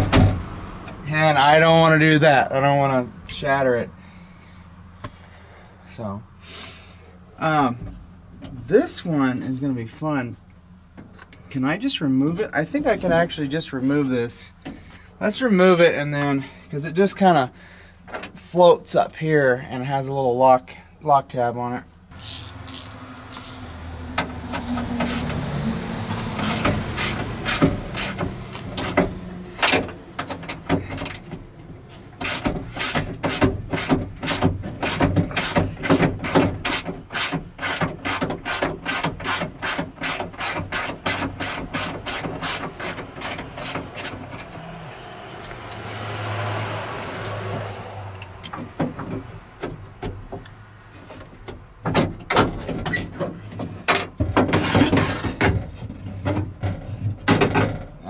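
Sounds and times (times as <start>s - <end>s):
scraping and rubbing: 22.1s - 23.8s, 26.2s - 29.6s, 30.8s - 44.6s, 52.5s - 58.0s
hand ratchet clicking: 22.2s - 23.8s, 25.0s - 25.4s, 26.4s - 29.7s, 32.2s - 44.6s.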